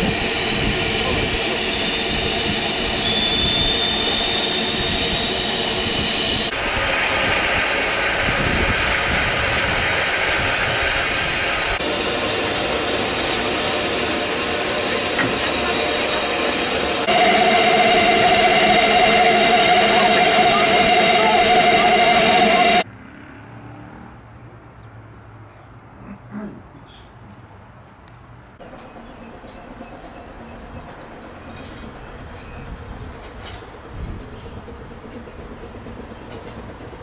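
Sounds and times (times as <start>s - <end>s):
steam hissing: 0.0s - 22.8s.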